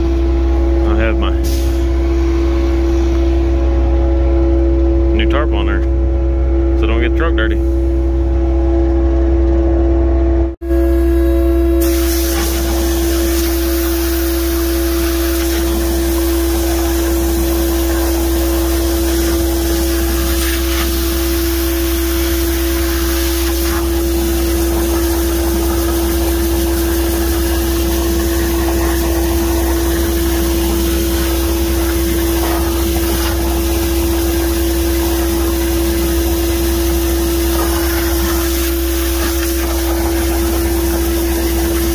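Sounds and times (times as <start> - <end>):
pressure washer spraying water: 11.8 - 41.9.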